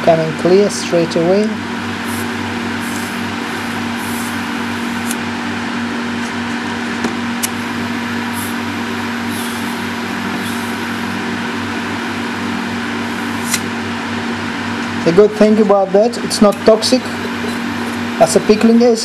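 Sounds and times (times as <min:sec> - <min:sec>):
extraction fan humming: 0:00.0 - 0:19.0
sharp crackling pops: 0:07.4 - 0:07.7, 0:13.4 - 0:13.7.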